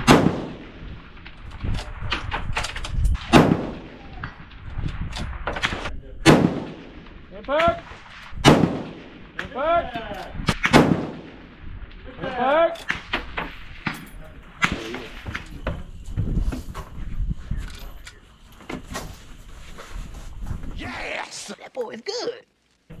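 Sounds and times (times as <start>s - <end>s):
rifle shots with echo: 0.0s - 1.2s, 3.2s - 4.1s, 5.6s - 9.4s, 10.6s - 11.6s.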